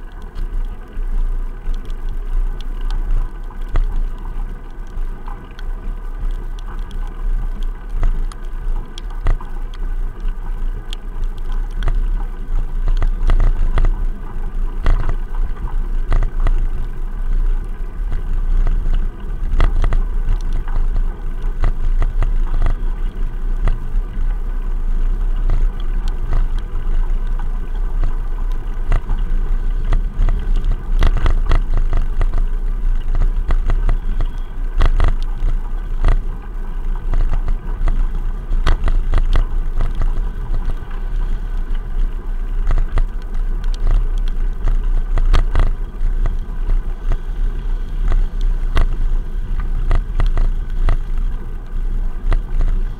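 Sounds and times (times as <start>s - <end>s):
camera vibration rumble: 0.0s - 52.9s.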